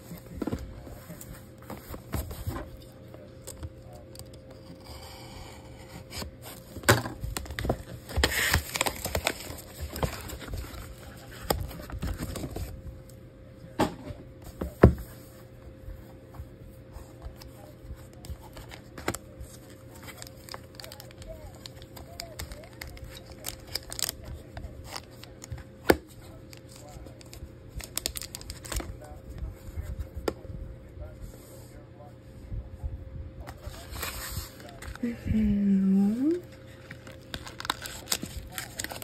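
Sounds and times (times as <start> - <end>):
cardboard packaging ripping: 6.0 - 12.6, 19.9 - 25.3, 27.8 - 28.8, 36.8 - 39.0.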